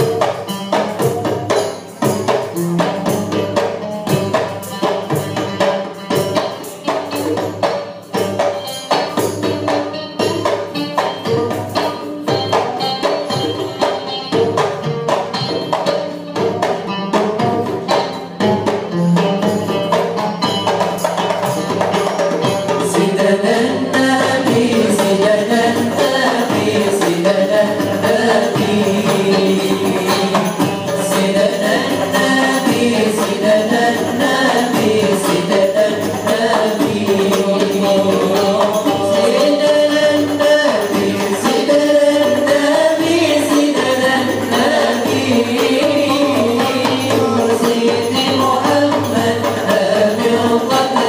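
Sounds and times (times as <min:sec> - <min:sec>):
frame drums beating: 0:00.0 - 0:51.0
male group singing in unison: 0:22.6 - 0:51.0.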